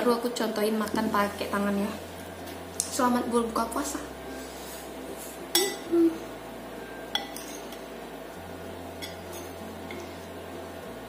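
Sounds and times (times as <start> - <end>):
spoon clinking against dish: 5.6 - 5.9, 7.1 - 7.8.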